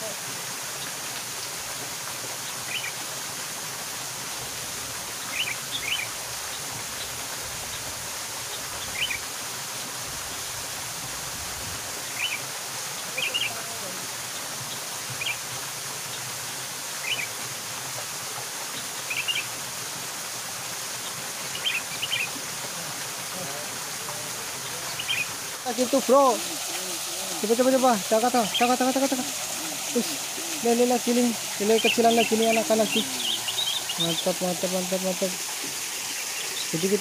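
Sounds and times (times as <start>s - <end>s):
small waterfall splashing into pool: 0.0s - 37.0s
bird chirping: 24.6s - 35.2s.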